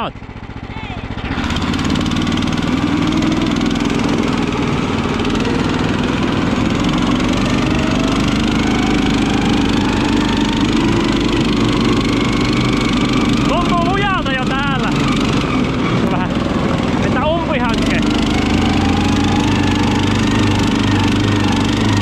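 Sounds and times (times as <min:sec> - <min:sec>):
tow sled engine running: 0:00.0 - 0:22.0
faint whine rising in pitch: 0:02.8 - 0:14.9, 0:16.8 - 0:22.0.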